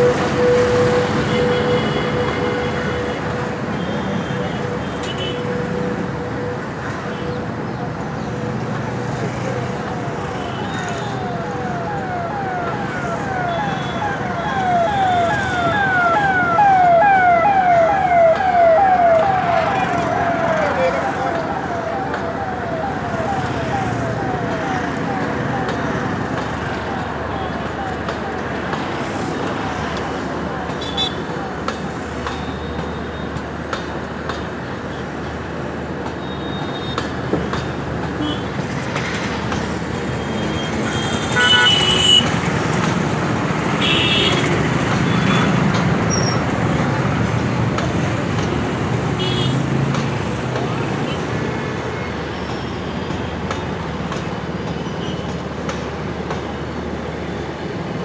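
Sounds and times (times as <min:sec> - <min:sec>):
electronic siren sweeps: 0:09.8 - 0:26.1
train coaches rumbling on tracks: 0:14.2 - 0:40.9, 0:42.2 - 0:58.0.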